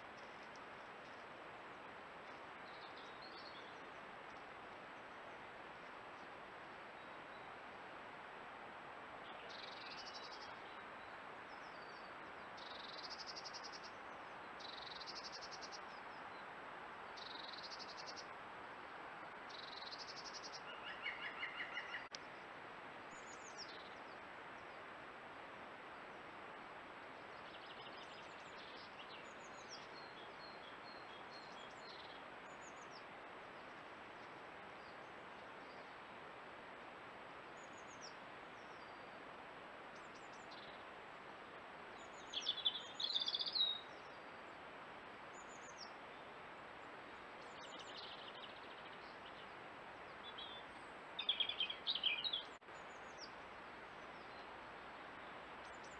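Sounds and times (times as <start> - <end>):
microphone hiss: 0.0 - 55.9
woodland birds singing: 2.2 - 5.3, 9.2 - 16.5, 17.1 - 18.3, 19.5 - 22.4, 23.1 - 24.8, 27.2 - 36.0, 37.6 - 39.1, 39.9 - 40.9, 41.9 - 44.7, 45.3 - 55.9.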